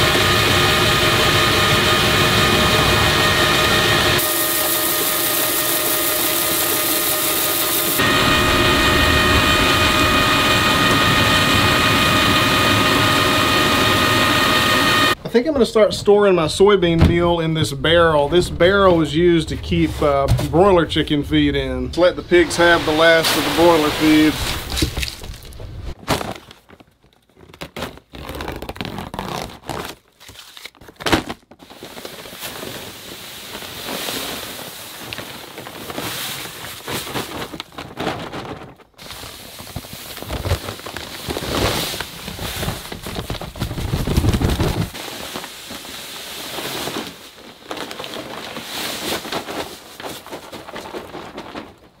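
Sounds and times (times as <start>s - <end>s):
paper sacks crinkling and tearing: 22.0s - 52.0s
dry feed pouring into plastic barrel: 31.8s - 37.2s.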